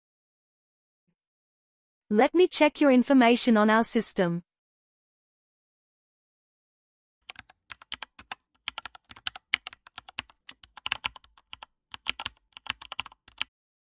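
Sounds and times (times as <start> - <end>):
keyboard key clicks: 7.3 - 13.5.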